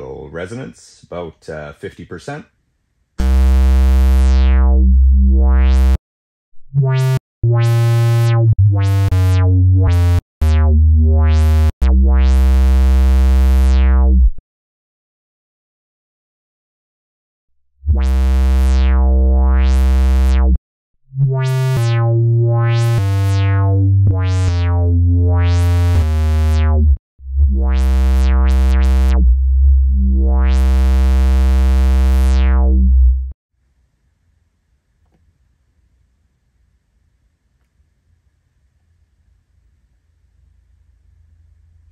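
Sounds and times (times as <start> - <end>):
synthesizer bass notes with filter sweep: 3.2 - 6.0, 6.6 - 14.4, 17.8 - 20.6, 21.2 - 33.4.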